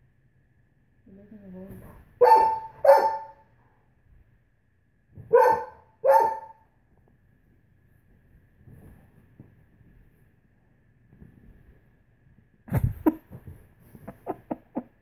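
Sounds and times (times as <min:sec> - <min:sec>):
dog barking: 0:02.2 - 0:03.4, 0:05.2 - 0:06.6.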